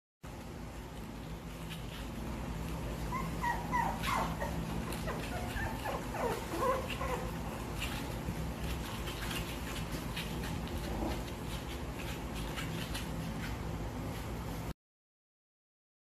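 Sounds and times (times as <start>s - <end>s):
steady low hum: 0.2s - 14.7s
puppies whimpering: 2.7s - 11.3s.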